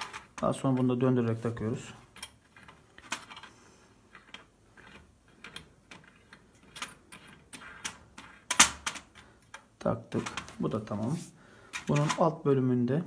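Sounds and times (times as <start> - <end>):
small metallic clicks and scrapes: 2.0 - 10.5.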